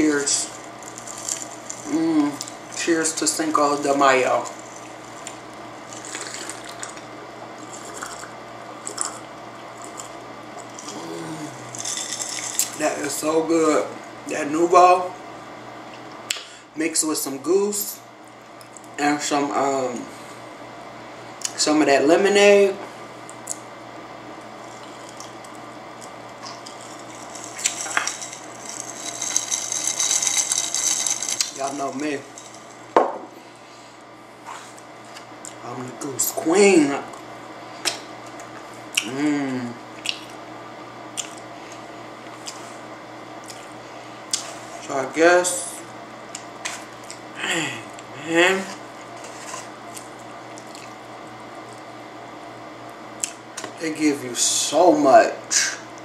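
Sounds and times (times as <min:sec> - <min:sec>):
low room hum: 0:00.0 - 0:56.0
crackling rustling close to microphone: 0:26.4 - 0:32.9.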